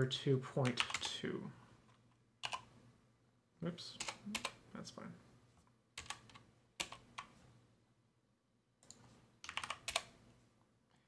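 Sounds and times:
computer keyboard clicking: 0.6s - 1.1s, 2.4s - 2.7s, 6.0s - 7.3s, 8.8s - 10.1s.

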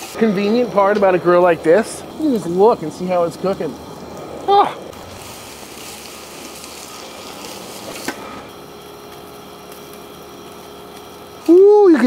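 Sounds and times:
meat sizzling on a grill: 0.0s - 12.0s.

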